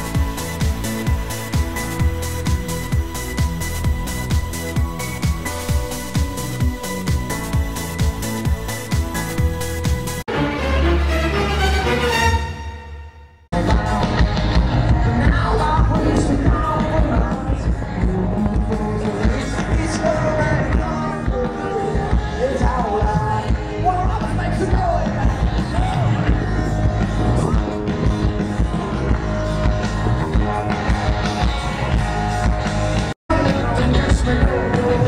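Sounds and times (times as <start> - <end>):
rock band playing live: 0.0 - 10.3, 13.5 - 35.0
person singing: 13.6 - 30.9, 33.3 - 35.0.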